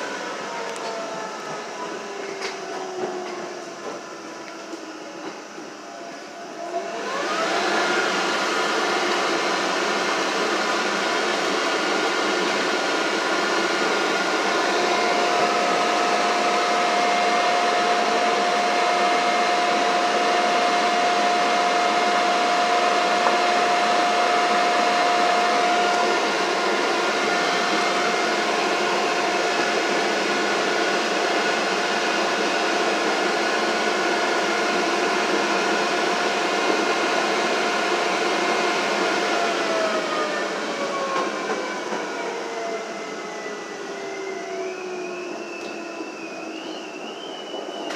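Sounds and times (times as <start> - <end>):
rail car wheel and track noise: 0.0 - 47.9
motor whine: 6.5 - 31.8.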